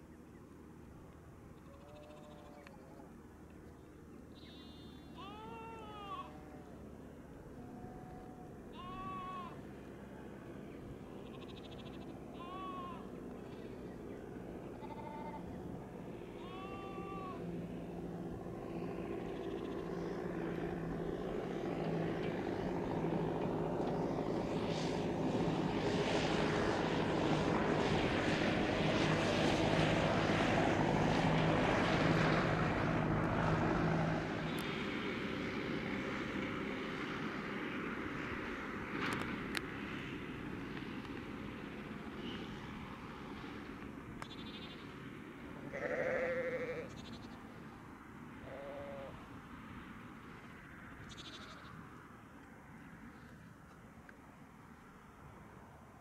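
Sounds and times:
tractor passing: 0.0s - 56.0s
lambs bleating: 1.7s - 2.6s, 4.7s - 6.6s, 7.8s - 9.6s, 11.2s - 13.7s, 14.7s - 15.5s, 16.4s - 17.4s, 45.6s - 47.3s, 48.5s - 49.1s, 51.1s - 51.7s.

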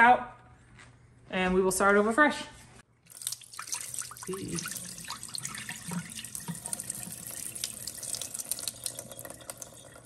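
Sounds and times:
water splashing into sink: 3.0s - 10.0s.

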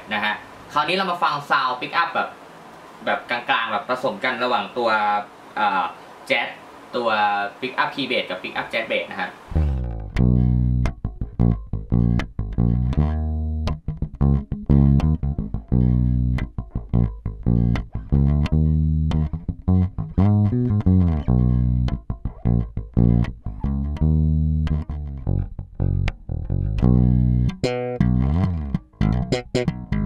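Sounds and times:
plucked bass guitar notes: 9.5s - 30.0s.

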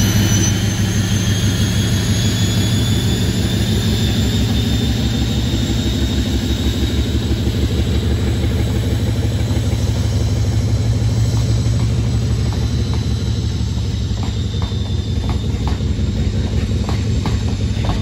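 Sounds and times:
high whistle: 0.0s - 6.5s
diesel locomotive engine throbbing: 0.0s - 18.0s.

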